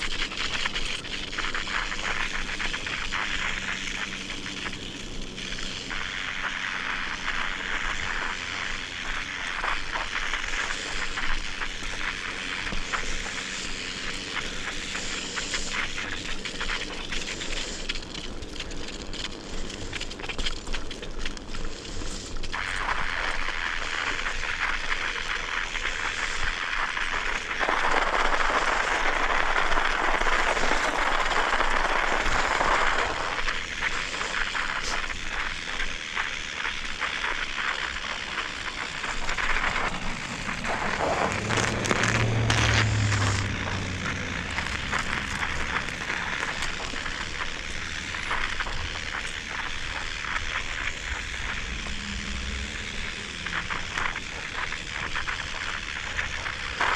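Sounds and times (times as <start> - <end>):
bicycle tyres crunching over snow: 0.0 - 56.9
short low hum: 37.0 - 56.6.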